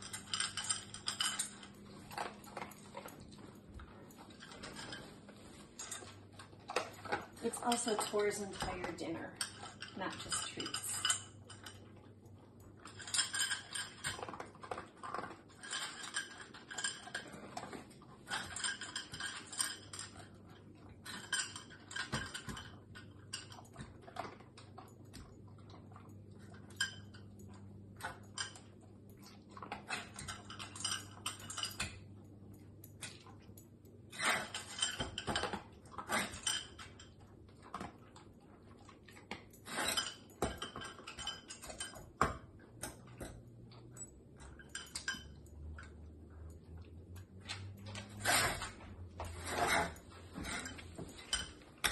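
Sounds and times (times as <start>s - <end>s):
metal tin clinking and rattling: 0.0s - 11.8s, 12.8s - 20.4s, 21.0s - 24.3s, 34.1s - 37.9s, 39.1s - 43.3s.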